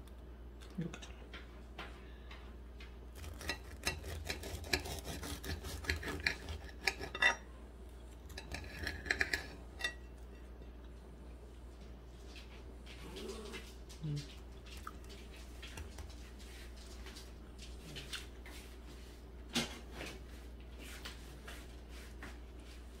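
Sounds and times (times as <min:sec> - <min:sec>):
steady low hum: 0:00.0 - 0:23.0
bread being torn and chewed: 0:02.9 - 0:07.1
low vocal murmurs: 0:13.0 - 0:14.3.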